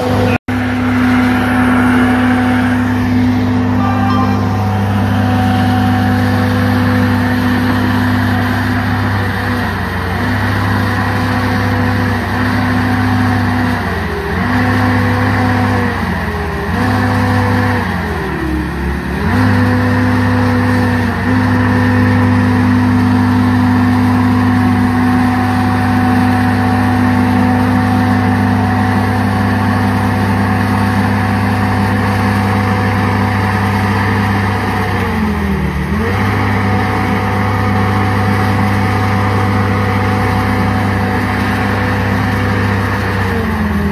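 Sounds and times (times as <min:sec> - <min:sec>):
track loader engine at high revs: 0:00.0 - 0:43.9.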